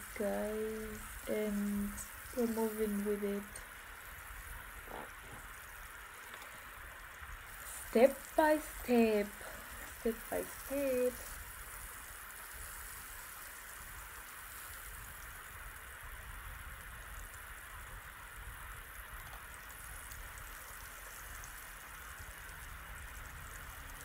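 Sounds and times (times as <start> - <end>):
faint crackles: 0.0 - 24.0
fish frying in oil: 0.0 - 24.0.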